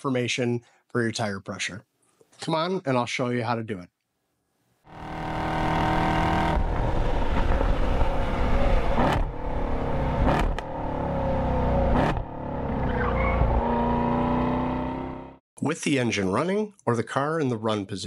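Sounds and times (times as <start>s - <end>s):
car engine running hard: 4.9s - 14.8s.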